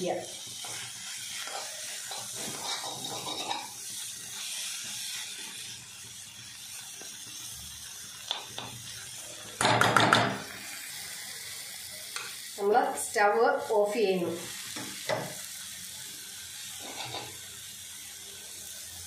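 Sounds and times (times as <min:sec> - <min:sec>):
food sizzling: 0:00.0 - 0:19.0
spatula scraping metal pan: 0:01.4 - 0:03.7, 0:16.8 - 0:17.3.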